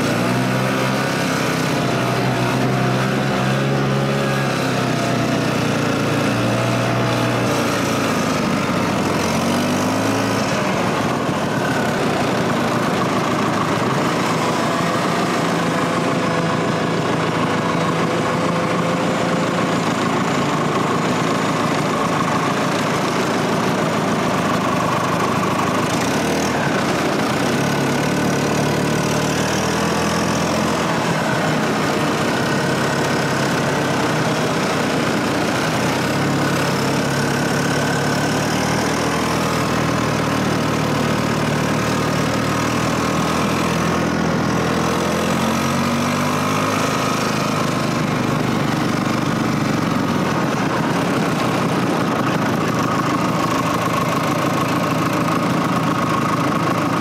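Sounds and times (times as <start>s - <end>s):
snowmobile engine under load: 0.0s - 57.0s.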